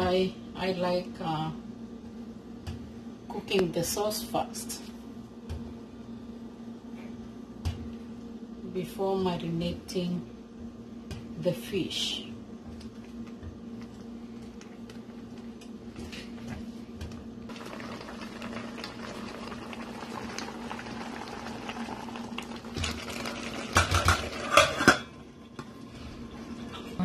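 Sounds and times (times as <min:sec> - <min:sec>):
thick sauce bubbling: 0:17.5 - 0:23.6
metal lid clanking on pot: 0:23.8 - 0:25.1.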